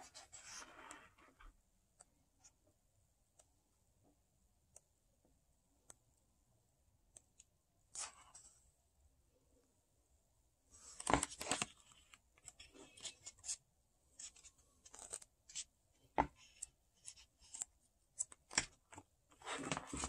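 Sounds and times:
book pages turning: 0:10.8 - 0:13.6, 0:14.2 - 0:20.0.

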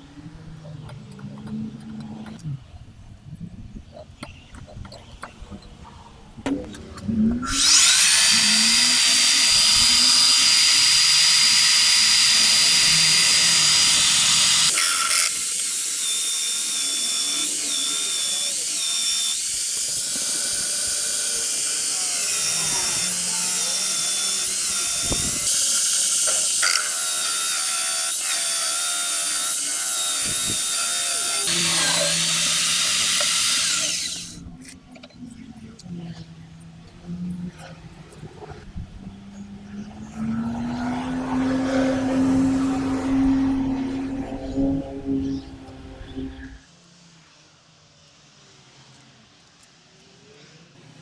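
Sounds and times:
electric drill whining: 0:07.2 - 0:34.5
hole saw cutting wood: 0:07.3 - 0:34.8.

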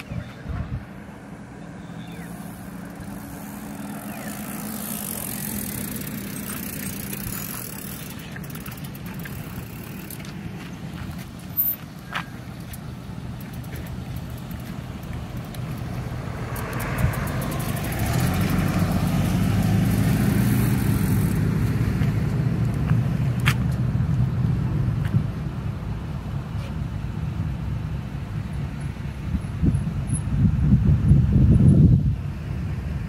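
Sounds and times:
vehicle driving past: 0:00.6 - 0:10.2, 0:15.0 - 0:23.3
sharp clicks: 0:12.6 - 0:18.0.

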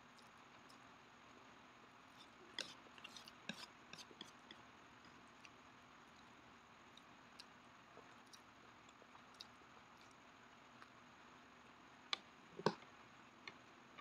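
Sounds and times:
chewing noodles: 0:06.9 - 0:10.2.

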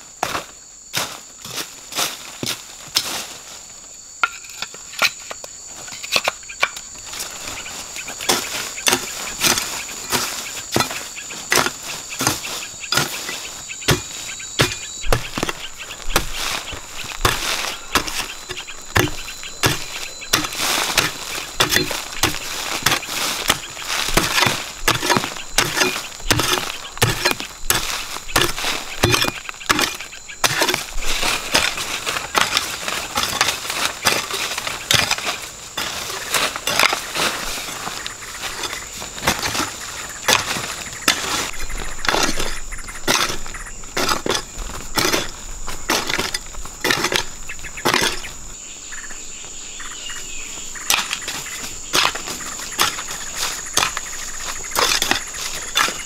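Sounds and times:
high insect drone: 0:00.0 - 0:56.0
loose dirt scattering: 0:07.1 - 0:48.4, 0:50.8 - 0:56.0
digging tool chopping soil: 0:08.2 - 0:37.8, 0:38.4 - 0:48.3, 0:50.8 - 0:56.0.

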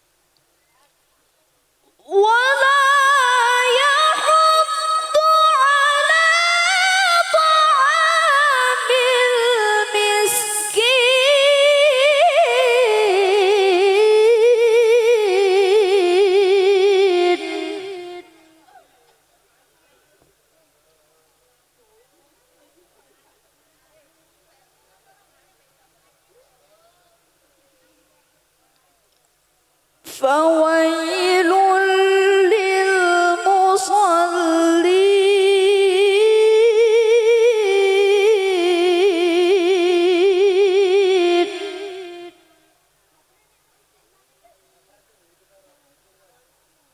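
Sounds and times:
woman reciting melodically through microphone: 0:01.8 - 0:18.8, 0:30.0 - 0:42.8.

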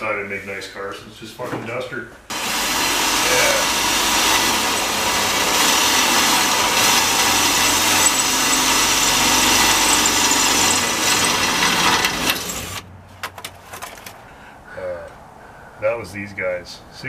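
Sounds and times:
power tool on steel panel: 0:02.3 - 0:12.8.

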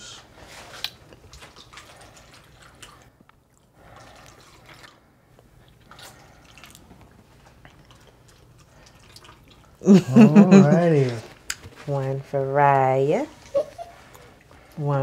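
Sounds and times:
juice trickling into cups: 0:00.2 - 0:10.3.

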